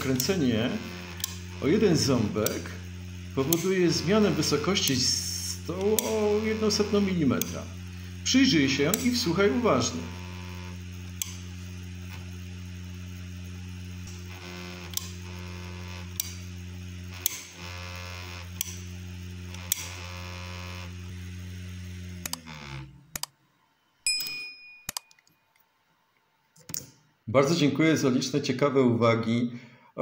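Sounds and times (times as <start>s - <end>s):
sharp knob clicks: 0.0s - 0.4s, 1.2s - 1.5s, 11.2s - 11.4s, 16.1s - 16.4s, 17.1s - 17.6s, 19.5s - 20.0s, 22.2s - 22.5s, 23.1s - 23.3s
fan humming: 0.0s - 23.3s
vibrating nozzle buzz: 0.0s - 23.3s.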